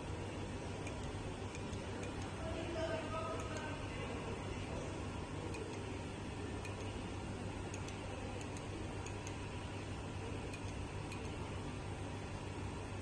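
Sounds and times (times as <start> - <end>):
low machine hum: 0.0 - 13.0
light machine ticks: 0.8 - 2.4, 3.3 - 3.7, 5.5 - 5.9, 6.6 - 7.0, 7.7 - 9.5, 10.5 - 11.4.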